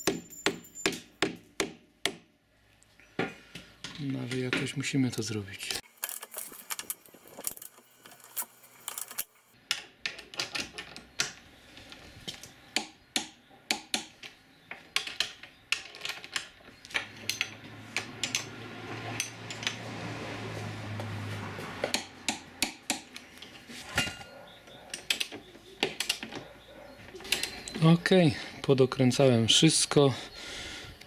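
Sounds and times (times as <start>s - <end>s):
spanner clinking on nut: 15.0s - 18.5s.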